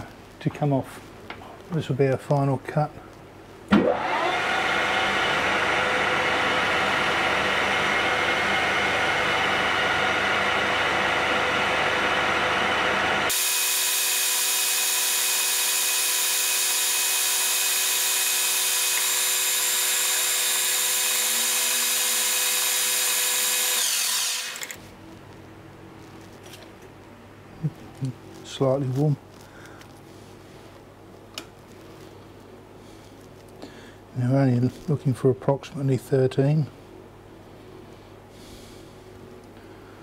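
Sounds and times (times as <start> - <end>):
metal lathe running: 12.0 - 24.8.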